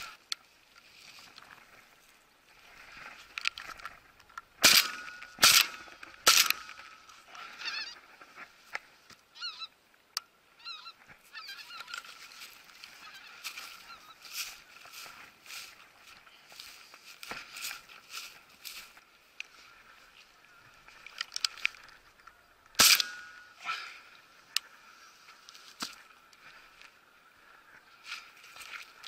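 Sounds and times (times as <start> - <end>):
shotgun shots: 4.6 - 6.7, 22.8 - 23.3
geese honking: 5.7 - 8.2.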